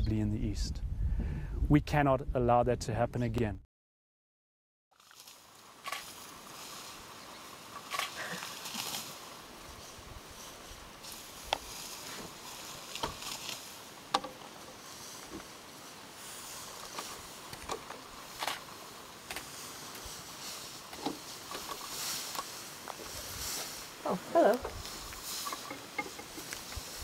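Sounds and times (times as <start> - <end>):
grass rustling: 4.9 - 27.0
faint steady hiss: 5.0 - 27.0
grass stems snapping: 7.8 - 9.2, 12.8 - 14.4.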